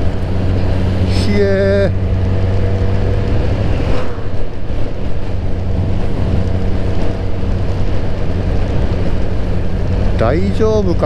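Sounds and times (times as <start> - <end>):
motorcycle engine cruising: 0.0 - 11.0
wind rushing over microphone: 0.0 - 11.0.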